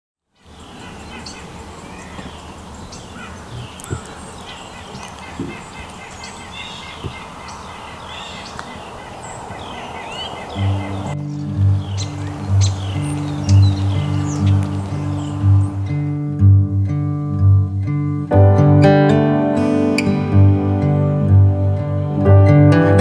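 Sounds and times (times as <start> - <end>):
birds chirping and calling: 0.4 - 16.3
steady background hiss: 0.4 - 16.4
music: 10.6 - 23.0.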